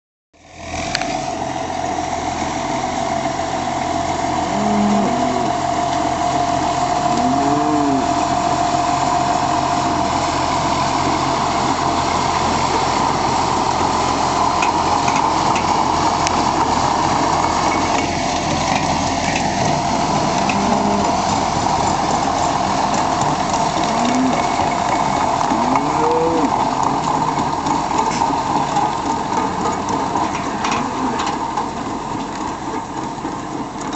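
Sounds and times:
machinery whine: 0.4s - 33.9s
tractor engine running: 0.4s - 33.9s
cattle mooing: 4.4s - 6.0s, 7.0s - 8.5s, 20.1s - 21.4s, 23.7s - 26.8s, 30.5s - 31.4s.

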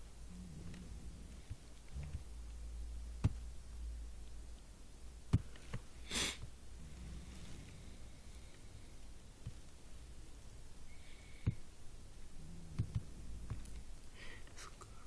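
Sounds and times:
low steady hum: 0.0s - 15.0s
short breathy hiss: 6.0s - 6.5s.

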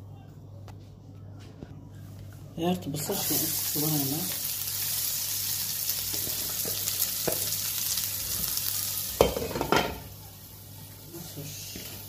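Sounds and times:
onions sizzling in hot oil: 2.9s - 12.0s.

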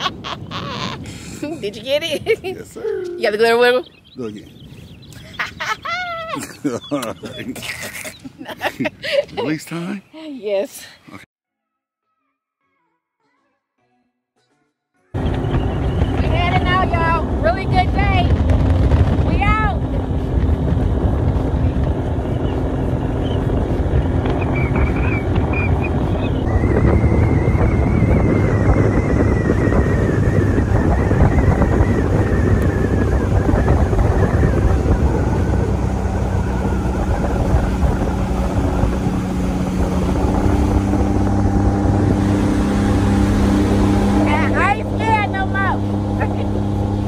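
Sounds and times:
rush of wind and water: 0.0s - 9.8s, 15.2s - 47.0s
outboard motor running: 15.2s - 47.0s.

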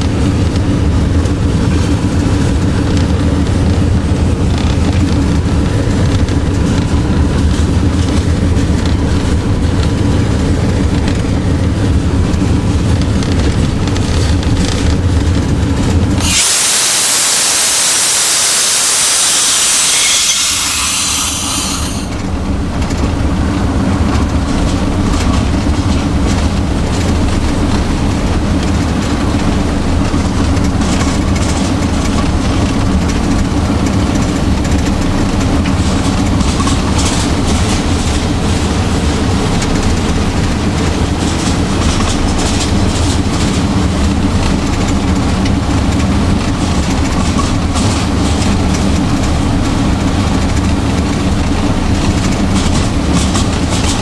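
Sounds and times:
train wheels clacking on rail joints: 0.0s - 16.6s, 18.6s - 54.0s
locomotive diesel engine running: 0.0s - 54.0s
loud hiss: 16.2s - 22.2s.

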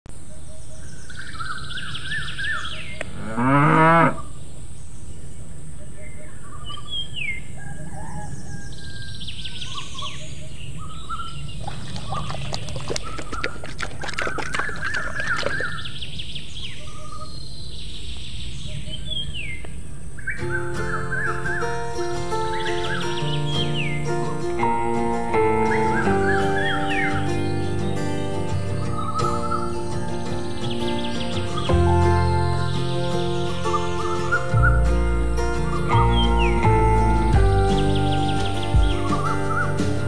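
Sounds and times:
birds chirping and singing: 0.2s - 40.0s
cow mooing: 3.1s - 4.3s.

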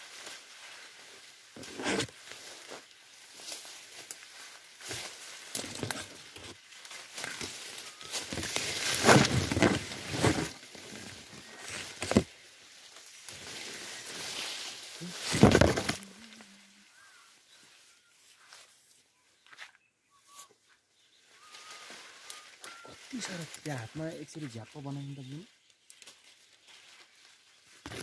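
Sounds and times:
leaves and branches rustling: 0.0s - 28.0s.

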